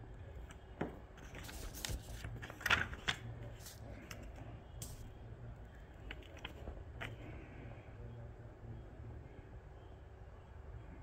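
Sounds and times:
paper rustling and crinkling: 1.2s - 5.1s, 6.0s - 7.3s.

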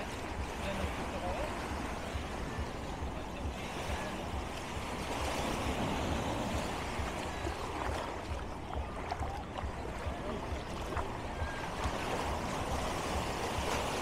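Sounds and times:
waves washing onto beach: 0.0s - 14.0s.

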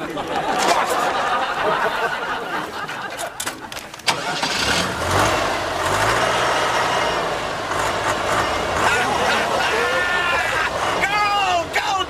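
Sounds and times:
heavy machine engine running: 4.1s - 12.0s.

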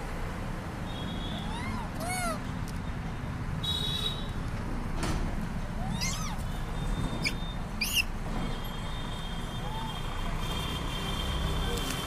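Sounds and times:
monkey calls: 1.4s - 2.5s, 5.8s - 6.5s, 7.2s - 8.1s
sharp high squeaks: 5.8s - 8.8s.

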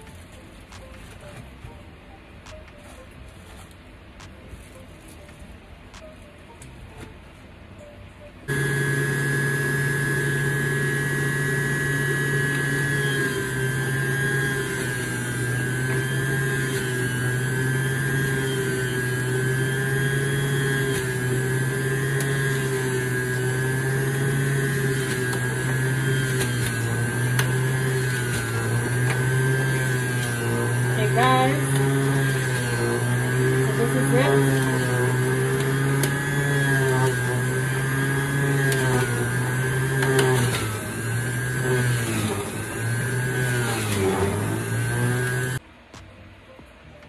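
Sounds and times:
juicer motor humming: 8.4s - 45.6s.

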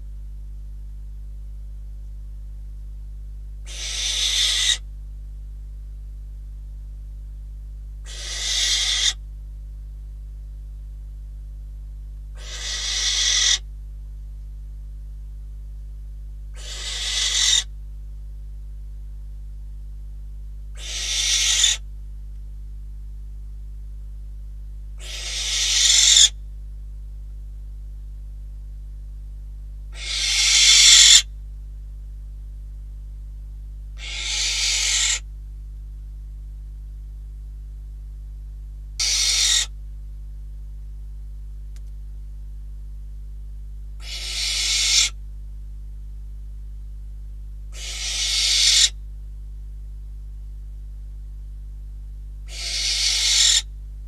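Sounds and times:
owl hissing calls: 3.6s - 4.9s, 8.0s - 9.2s, 12.3s - 13.7s, 16.5s - 17.7s, 20.7s - 21.8s, 25.0s - 26.4s, 29.9s - 31.3s, 34.0s - 35.3s, 39.0s - 39.8s, 44.0s - 45.2s, 47.7s - 49.0s, 52.4s - 53.7s.

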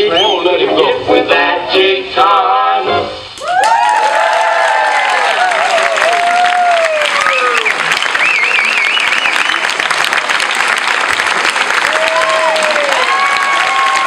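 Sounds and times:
audience applauding: 3.4s - 14.0s.

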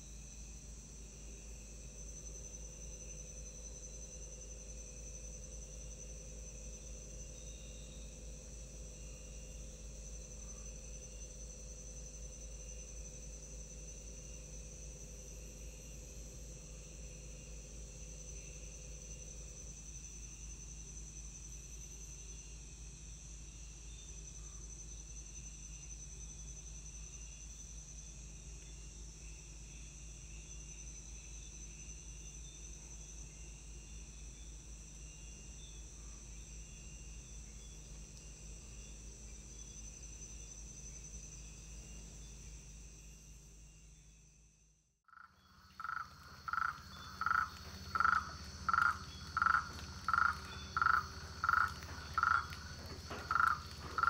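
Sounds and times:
insects droning: 0.0s - 54.0s
frog calling: 45.1s - 54.0s.

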